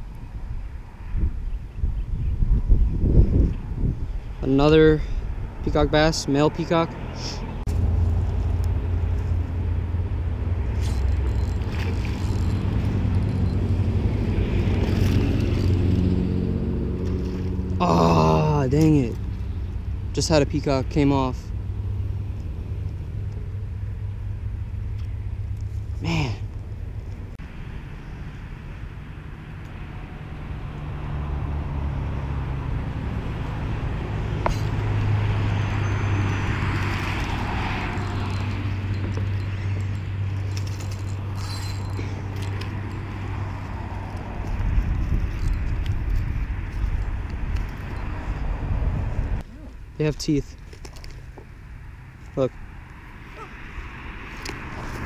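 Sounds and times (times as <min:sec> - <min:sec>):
vehicle engine humming: 0:02.6 - 0:55.0
steady low rumble: 0:07.5 - 0:17.8.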